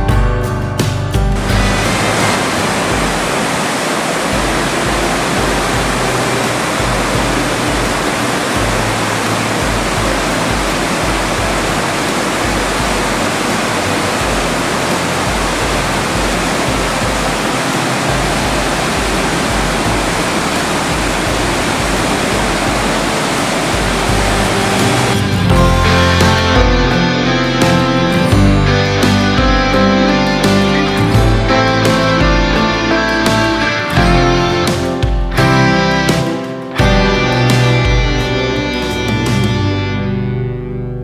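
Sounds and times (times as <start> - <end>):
torrent rushing through gorge: 1.4 - 28.4.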